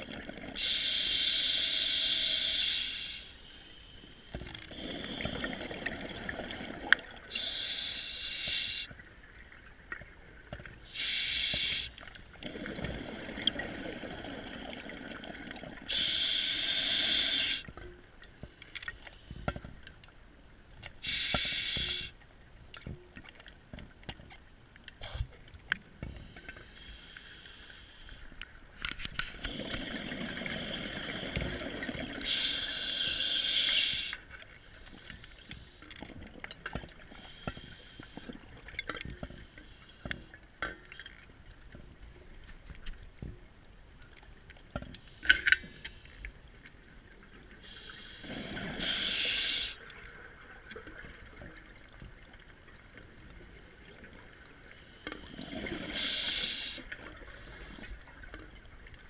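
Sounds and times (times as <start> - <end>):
faint underwater clicks: 6.8 - 12.6, 16.0 - 29.9
diver breathing through regulator: 7.3 - 8.9, 11.0 - 12.0, 15.9 - 17.7, 21.0 - 22.1, 32.2 - 34.2, 47.6 - 49.8, 54.8 - 58.0.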